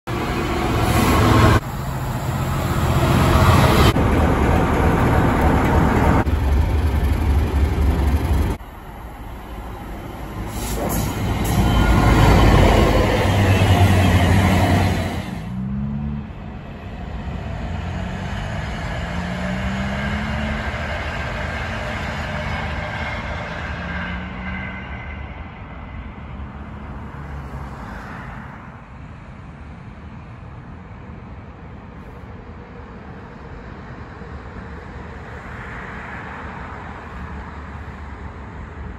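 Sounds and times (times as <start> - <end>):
diesel locomotive rumbling: 0.0 - 28.0.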